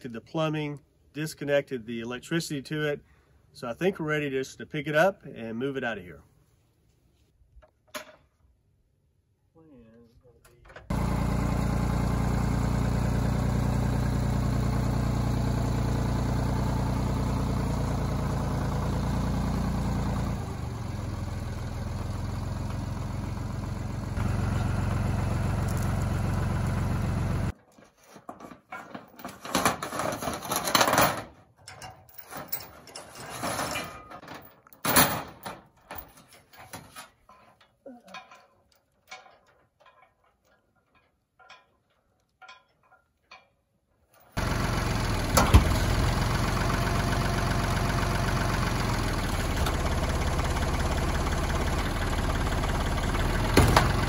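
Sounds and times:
tractor diesel engine running: 10.9 - 27.5, 44.4 - 54.0
metallic chain clanks and rattles: 28.6 - 43.6.

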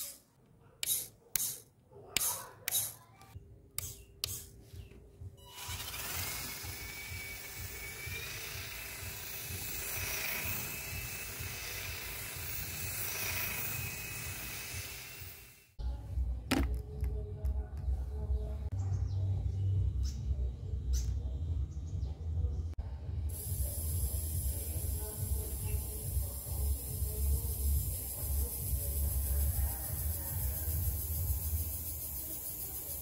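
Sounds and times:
electric motor whine: 5.4 - 15.1.

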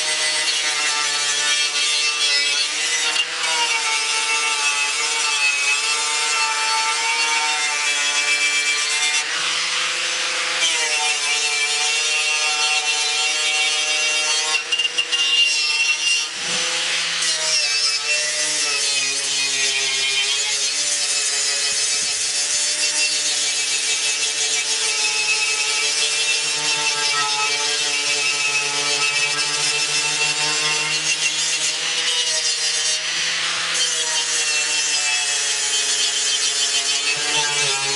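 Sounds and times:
angle grinder wire brush on metal: 12.2 - 37.9.

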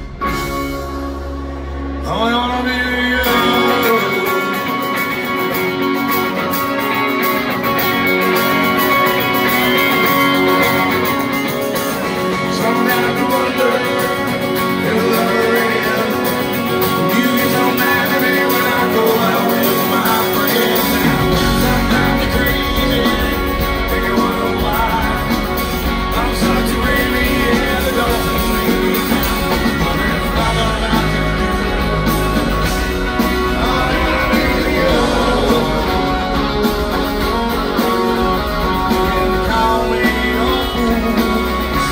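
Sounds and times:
live rock band playing: 0.0 - 41.9
person singing: 1.9 - 6.9, 7.6 - 41.9
deep bass line: 21.0 - 41.9.

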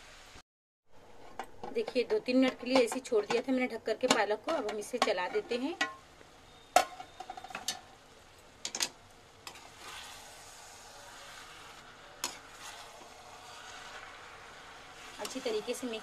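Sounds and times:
food sizzling: 0.0 - 0.4, 1.0 - 16.0
steel spatula scraping a pan: 9.4 - 16.0.

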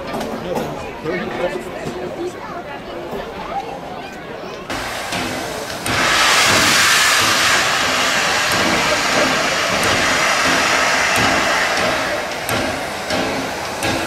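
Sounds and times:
steam locomotive venting steam: 4.7 - 14.0.

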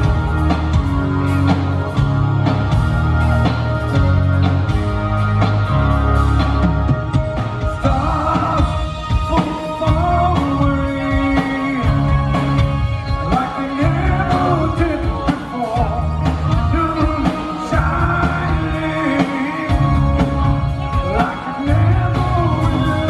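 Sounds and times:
electric bass: 0.0 - 15.0, 15.7 - 23.0
drum kit: 0.0 - 23.0
man singing lead vocal: 7.6 - 23.0.

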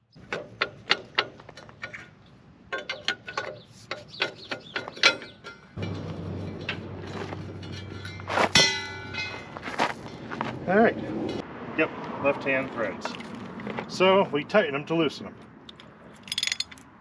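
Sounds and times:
metallic clicks and knocks of tools: 2.7 - 6.8, 15.7 - 16.9
loud metal clang: 4.4 - 9.6.

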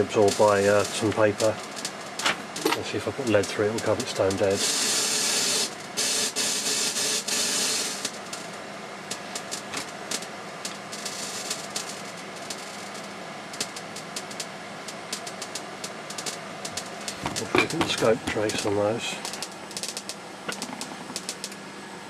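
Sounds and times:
counter tube crackling clicks: 13.6 - 21.6.

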